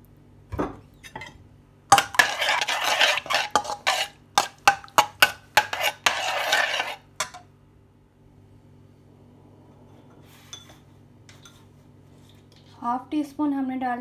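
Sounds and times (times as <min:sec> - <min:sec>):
spoon scraping and clinking in wok: 0:01.9 - 0:07.4.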